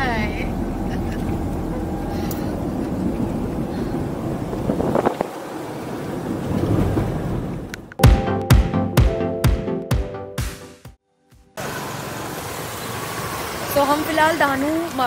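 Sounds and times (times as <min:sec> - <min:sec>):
car road and engine rumble: 0:00.0 - 0:08.0.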